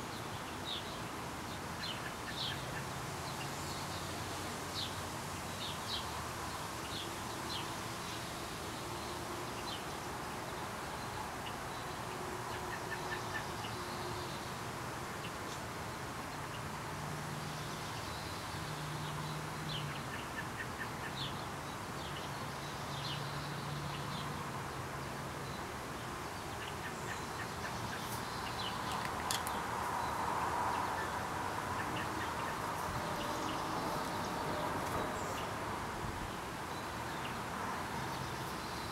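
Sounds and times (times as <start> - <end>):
small birds chirping: 25.4 - 35.6.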